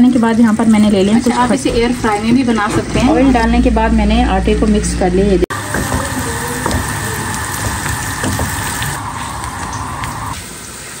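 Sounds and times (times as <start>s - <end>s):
tap water running into sink: 5.5s - 11.0s.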